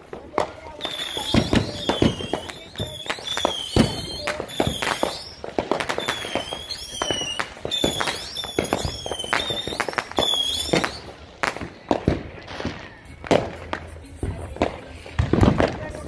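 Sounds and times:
fireworks bangs and pops: 0.0s - 16.0s
high bending whistle: 0.8s - 11.2s.

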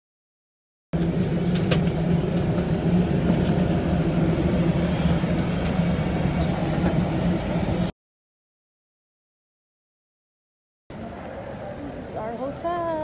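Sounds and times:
bus engine droning: 1.0s - 7.9s.

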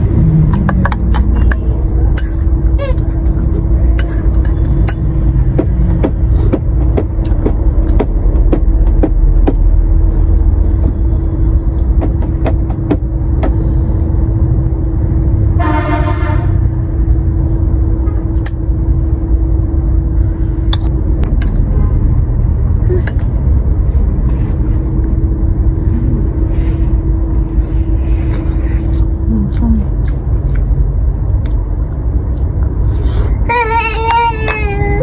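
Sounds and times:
constant hum: 0.0s - 35.0s
low rumble: 0.0s - 35.0s
short horn-like tone: 15.6s - 16.6s.

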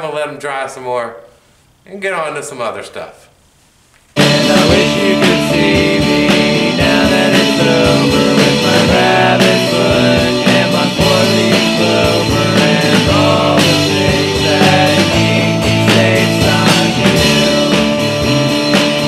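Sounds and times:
rock music with singing: 4.2s - 19.0s.

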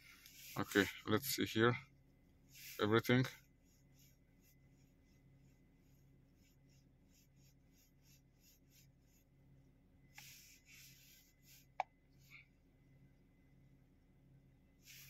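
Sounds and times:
finger rubbing touchscreen: 10.2s - 11.8s.

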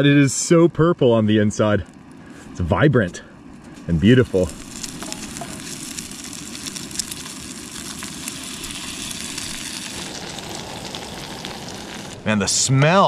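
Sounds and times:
stove burner hissing: 0.0s - 13.0s
potato slices sizzling in butter: 3.9s - 12.3s.

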